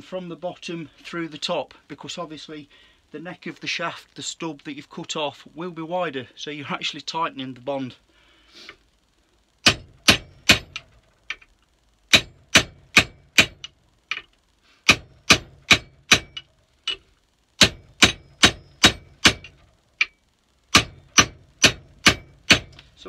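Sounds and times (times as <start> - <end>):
hammer striking steel drift: 9.6 - 10.8, 12.1 - 13.7, 14.8 - 17.0, 17.6 - 22.8.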